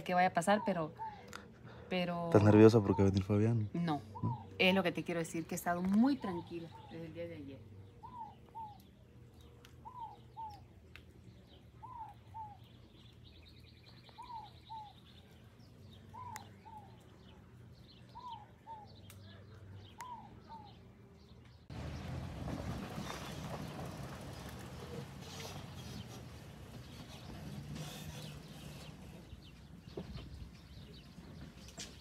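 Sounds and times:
bird chirps: 5.4 - 21.7.

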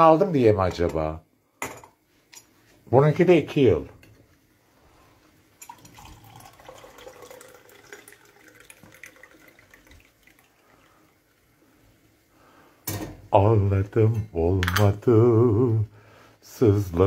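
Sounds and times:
tea pouring into a mug: 5.6 - 11.5.

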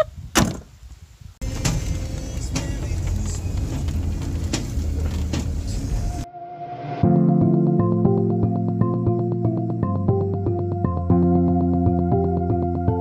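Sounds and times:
sharp thump: 0.3 - 0.7
road noise inside car cabin: 1.4 - 6.2.

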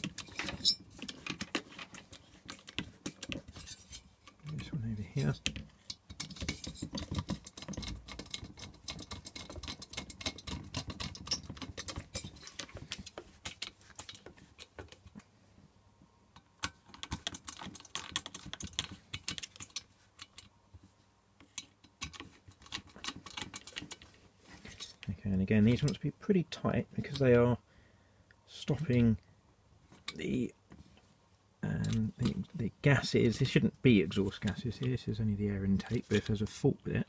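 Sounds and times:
metal tools clicking and rattling: 0.0 - 15.1, 16.6 - 20.5, 21.4 - 25.1, 25.7 - 26.0.

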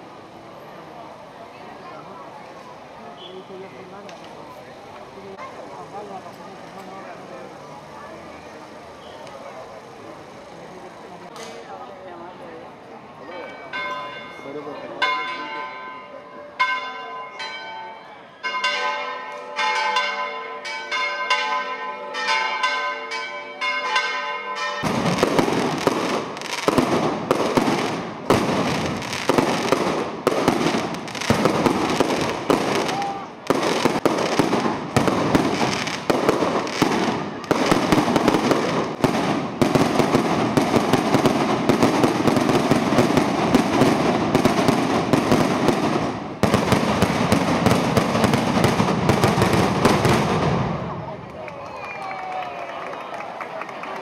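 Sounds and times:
church bells ringing: 13.2 - 25.2
firecracker bangs: 24.8 - 51.1.

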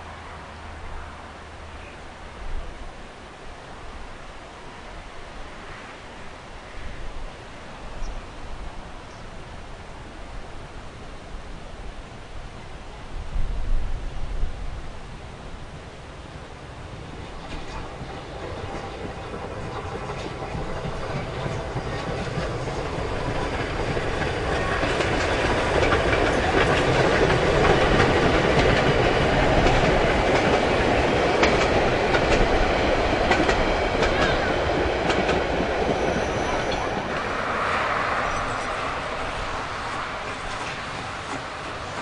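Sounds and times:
steam train rumbling along track: 16.7 - 42.0
wheels clicking over rail joints: 17.4 - 37.4, 38.3 - 42.0.

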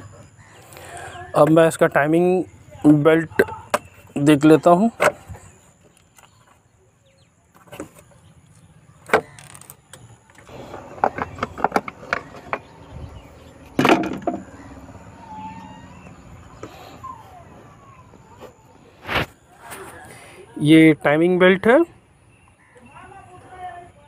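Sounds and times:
plastic knocks and clatters: 10.7 - 12.8, 13.8 - 14.5.

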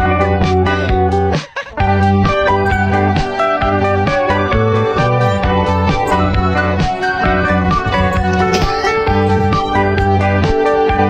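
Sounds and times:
guitar music with steady beat: 0.0 - 11.0.

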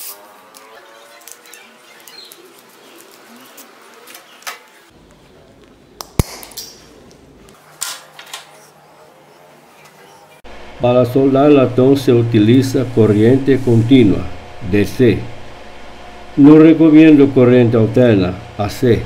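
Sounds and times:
pliers snapping through wire: 6.0 - 6.9.

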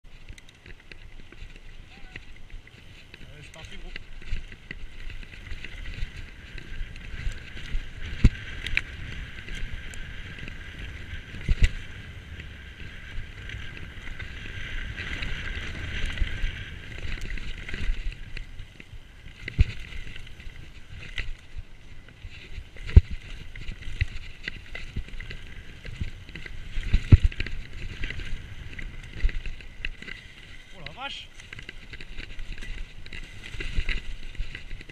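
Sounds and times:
bike tyres rolling on dirt: 0.0 - 34.9.

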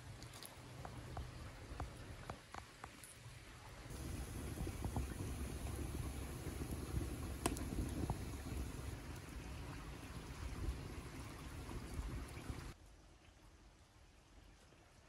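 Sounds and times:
wood fire crackling in a stove: 3.9 - 12.8.

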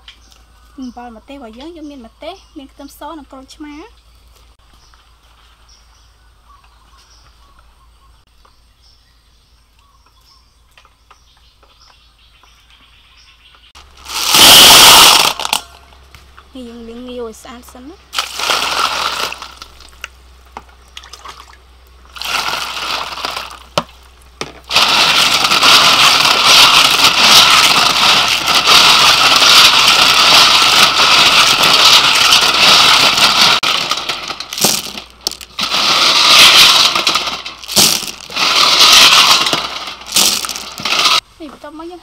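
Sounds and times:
shells rattling in metal bowl: 24.7 - 41.2.

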